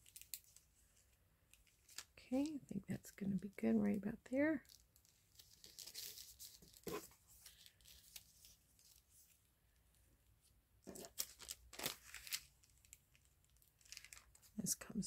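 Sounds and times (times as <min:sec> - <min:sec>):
paper rustling: 0:05.0 - 0:09.4, 0:10.9 - 0:13.0.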